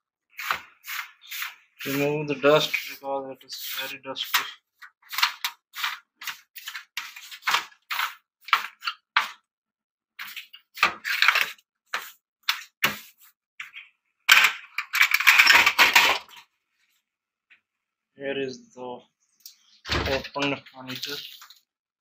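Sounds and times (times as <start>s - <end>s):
brush scrubbing metal: 0.4s - 5.2s.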